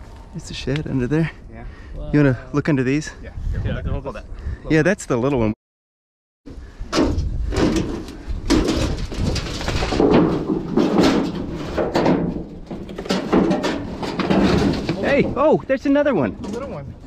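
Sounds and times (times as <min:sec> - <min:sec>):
boards knocking and scraping: 0:06.9 - 0:15.4.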